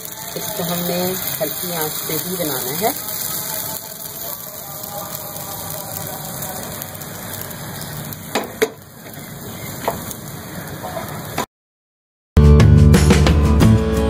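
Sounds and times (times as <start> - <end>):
batter sizzling in a frying pan: 0.0 - 11.5
guitar music: 12.4 - 14.0.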